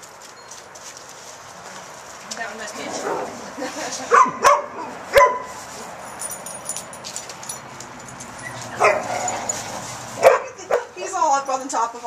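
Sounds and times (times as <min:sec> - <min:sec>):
dog barking: 0:04.1 - 0:05.5, 0:08.8 - 0:09.3, 0:10.2 - 0:11.0.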